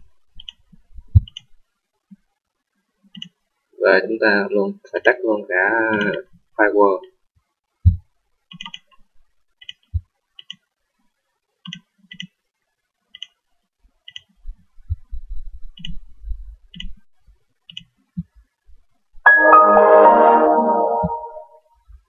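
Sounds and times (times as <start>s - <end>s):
computer mouse clicking: 0.4s - 1.5s, 3.1s - 3.4s, 8.5s - 9.0s, 9.6s - 10.7s, 11.6s - 12.4s, 13.1s - 13.4s, 14.0s - 14.4s, 15.8s - 16.0s, 16.7s - 17.0s, 17.7s - 18.3s
computer system chime: 19.3s - 21.6s.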